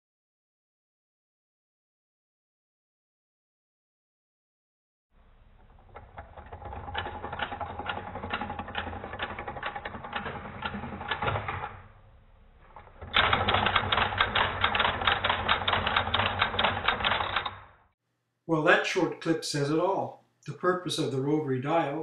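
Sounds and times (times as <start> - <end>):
rotary telephone dial: 5.6 - 11.8, 12.8 - 17.6
rapid mechanical switch clicking: 6.0 - 11.8, 12.9 - 17.8.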